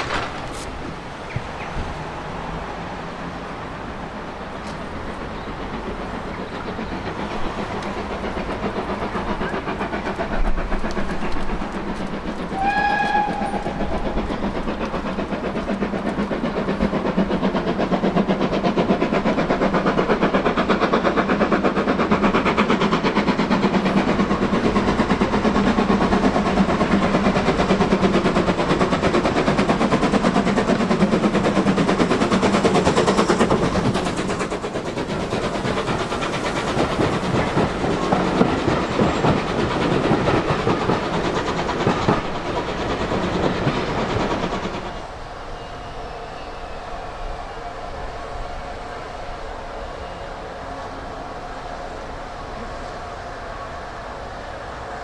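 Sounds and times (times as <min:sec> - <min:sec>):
steam train rattling on rails: 0:00.0 - 0:55.0
steam whistle blast: 0:12.6 - 0:14.0, 0:45.2 - 0:52.1.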